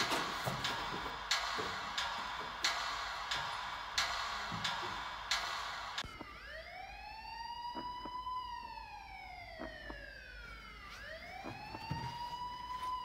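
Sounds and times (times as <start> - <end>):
emergency vehicle siren wailing: 6.0 - 13.0.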